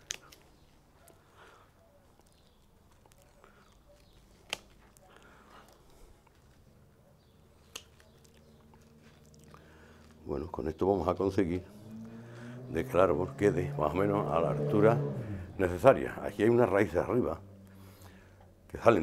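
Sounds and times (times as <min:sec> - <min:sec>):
rustling of root ball: 0:00.0 - 0:11.6.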